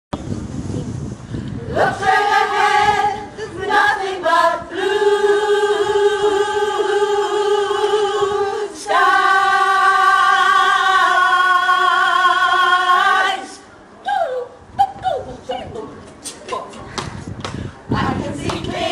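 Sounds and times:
women's choir singing unaccompanied: 1.7 - 13.7, 17.9 - 18.9.

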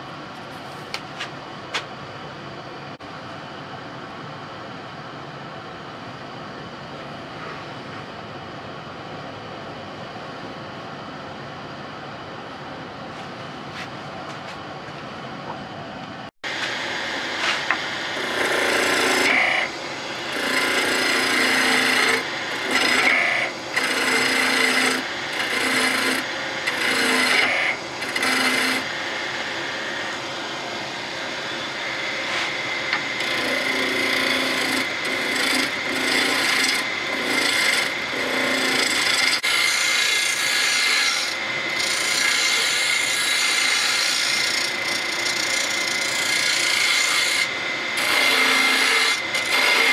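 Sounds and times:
wood lathe tool scraping wood: 16.6 - 29.6, 32.2 - 49.9.

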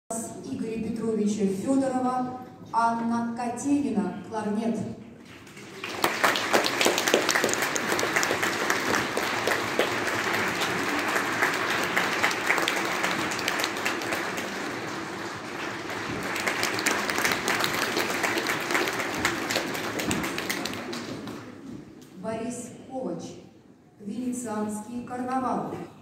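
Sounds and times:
audience applauding: 5.3 - 21.6.

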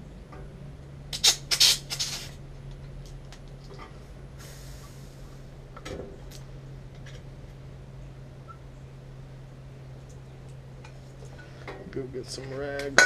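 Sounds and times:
pressurised gas hissing: 1.2 - 2.4, 4.4 - 5.6.

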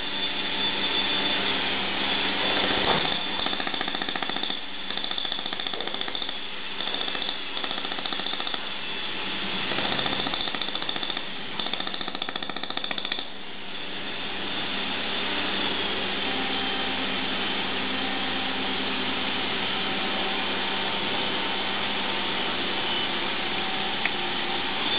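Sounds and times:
laser welder pulsing buzz: 0.0 - 13.4
machine hiss and hum: 0.0 - 24.9.

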